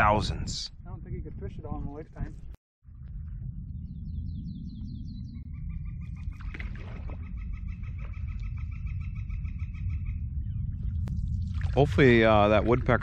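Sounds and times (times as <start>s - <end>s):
woodpecker laughing call: 7.1s - 10.2s.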